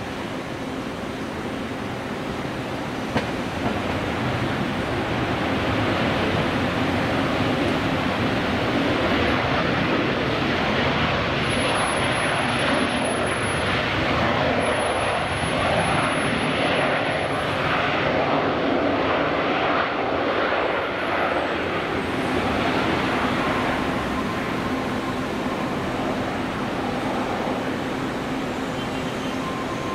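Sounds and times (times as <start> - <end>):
jet engines roaring: 0.0 - 29.9
faint high whine: 18.2 - 29.9.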